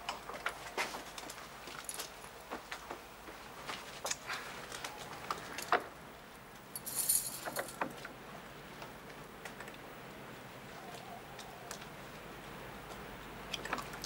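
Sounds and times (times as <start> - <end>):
metal jingling: 6.8 - 7.8.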